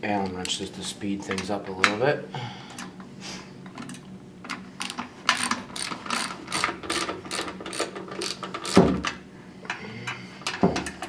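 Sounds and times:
hand ratchet clicking: 0:04.8 - 0:08.9.

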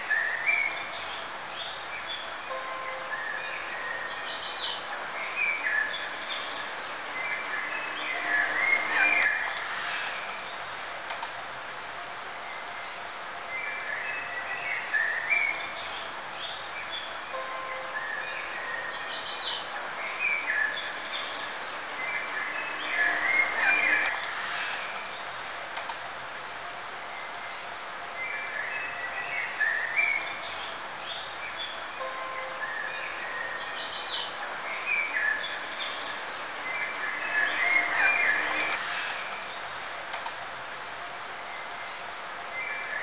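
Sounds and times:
birds chirping and singing: 0:00.0 - 0:10.9, 0:13.5 - 0:25.3, 0:27.4 - 0:39.9
steady background hiss: 0:00.0 - 0:43.0.

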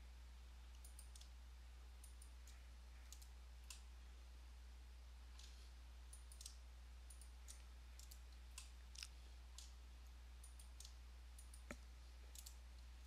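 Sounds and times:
steady low hum: 0:00.0 - 0:13.0
computer mouse clicks: 0:00.7 - 0:01.4, 0:02.0 - 0:03.9, 0:05.3 - 0:09.8, 0:10.4 - 0:12.6.

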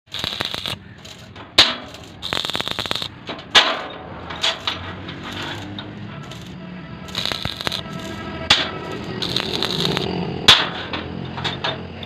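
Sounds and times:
welding arc crackling and hissing: 0:00.0 - 0:01.3, 0:01.9 - 0:03.2, 0:05.3 - 0:08.2, 0:08.8 - 0:10.1
sharp cracks: 0:00.1 - 0:03.8, 0:07.1 - 0:08.2, 0:08.9 - 0:10.1.

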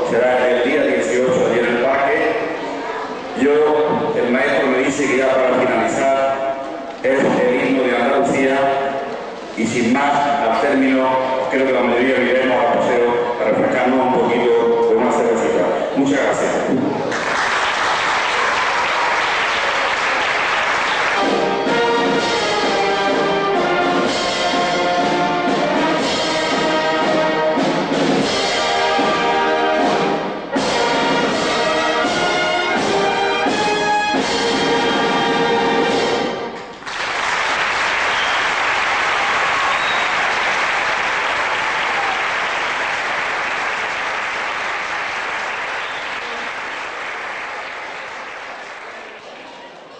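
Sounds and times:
applause: 0:17.0 - 0:21.5, 0:36.7 - 0:49.9
wind band playing held chords: 0:20.7 - 0:36.6.

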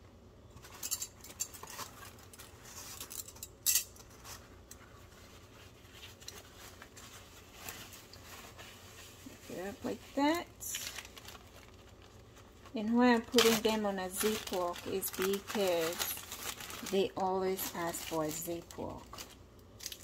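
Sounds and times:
paper towel rustling: 0:04.1 - 0:19.4.

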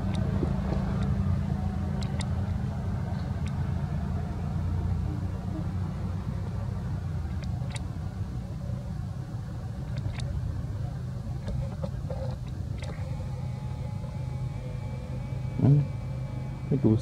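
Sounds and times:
engine humming: 0:00.0 - 0:17.0
faint clicks: 0:01.9 - 0:02.5, 0:03.1 - 0:03.6, 0:07.3 - 0:07.9, 0:09.9 - 0:10.4.

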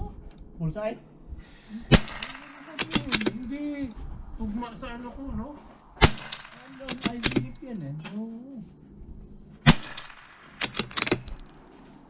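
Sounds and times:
rifle shot: 0:01.9 - 0:03.4, 0:06.0 - 0:07.6, 0:09.6 - 0:11.5.

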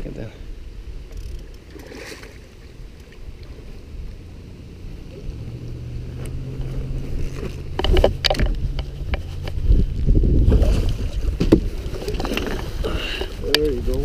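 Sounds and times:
low steady hum: 0:00.0 - 0:14.0
water splashing: 0:01.0 - 0:14.0
knocks and scrapes on boat: 0:06.6 - 0:13.3.

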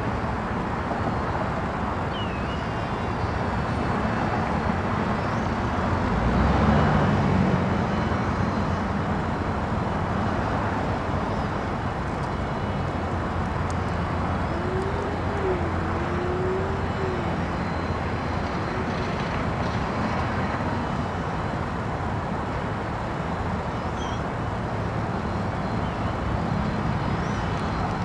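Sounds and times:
blimp engines and propellers running: 0:00.0 - 0:28.0.

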